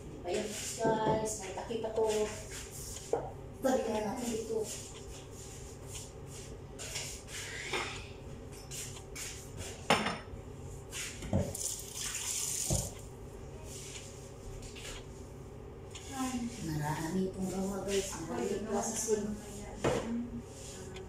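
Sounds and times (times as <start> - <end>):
tap running: 11.2 - 13.1.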